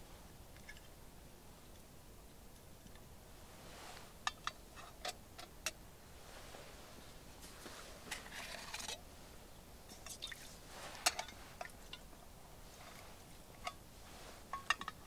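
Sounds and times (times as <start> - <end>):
soft scraping rustle: 3.4 - 5.2, 6.1 - 15.0
metal cookware clicks and knocks: 14.5 - 15.0.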